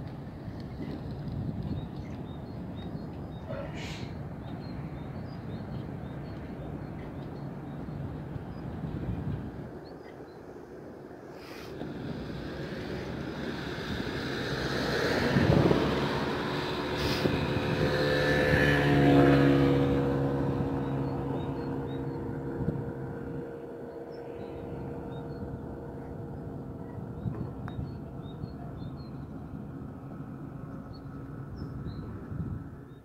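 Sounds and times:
motor vehicles passing close: 11.1s - 33.0s.

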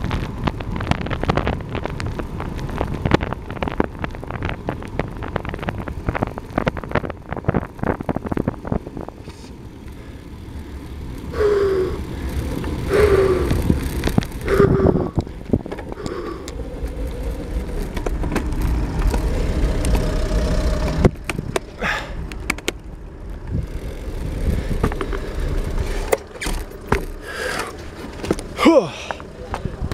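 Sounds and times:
bike tyre noise: 0.0s - 29.9s
wind rumble on microphone: 0.0s - 29.9s
sharp clicks and knocks: 17.6s - 20.1s, 20.8s - 22.9s, 24.7s - 28.5s.

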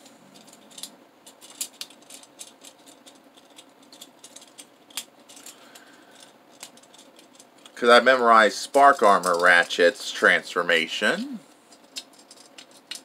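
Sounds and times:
plastic toy parts clicking: 0.4s - 7.8s, 9.0s - 9.7s, 11.7s - 13.0s.

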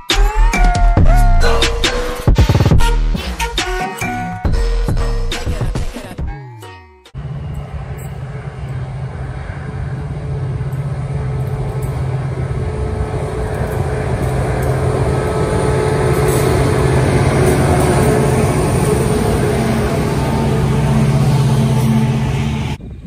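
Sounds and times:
train engine rumbling: 7.1s - 23.0s.

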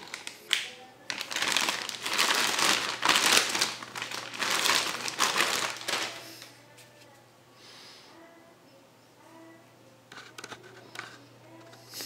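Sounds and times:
plastic bag crinkling: 0.0s - 6.5s.

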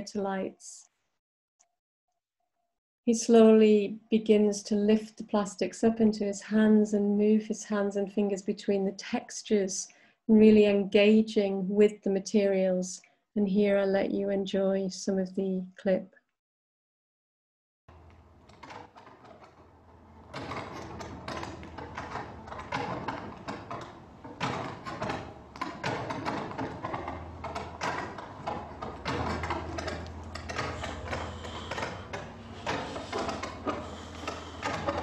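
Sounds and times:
low steady hum: 19.3s - 35.0s.

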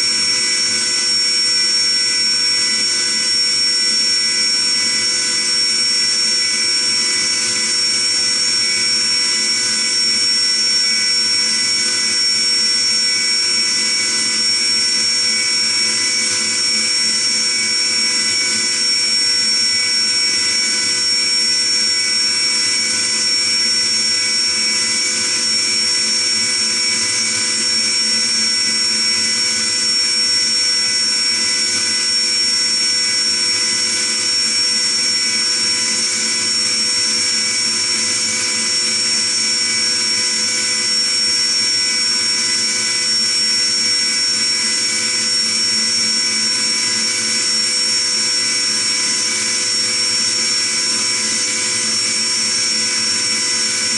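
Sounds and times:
milling machine spindle whine: 0.0s - 53.9s.

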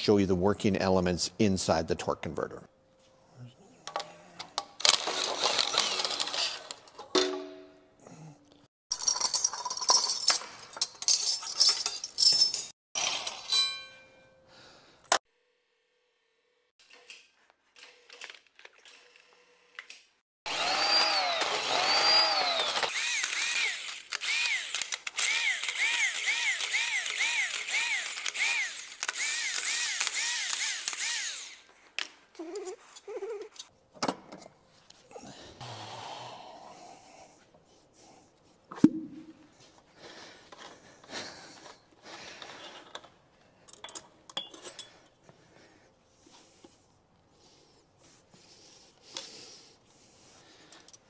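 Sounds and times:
power tool whining in pulses: 20.5s - 31.7s.

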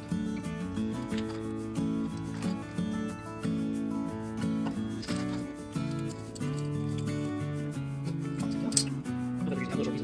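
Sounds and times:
light regular percussion: 0.0s - 10.0s.

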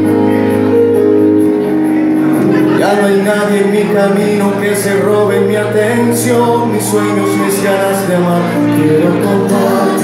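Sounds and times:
bass guitar: 0.0s - 10.0s
sustained keyboard chords: 0.0s - 10.0s
person singing: 2.4s - 10.0s.

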